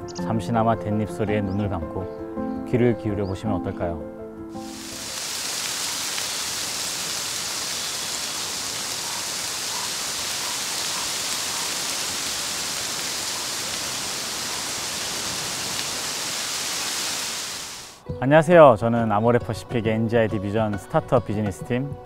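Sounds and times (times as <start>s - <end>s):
bamboo leaves rustling in wind: 4.6s - 18.0s.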